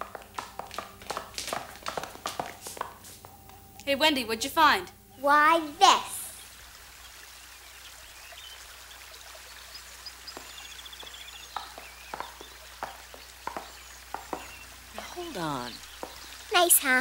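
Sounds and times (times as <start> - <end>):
faint steady hiss: 0.0 - 17.0
bird trill: 5.9 - 16.6
high bird chirps: 5.9 - 16.6.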